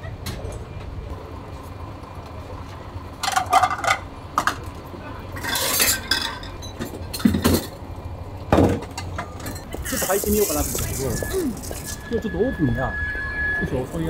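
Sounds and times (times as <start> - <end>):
dishes and cutlery clattering: 5.4 - 7.8.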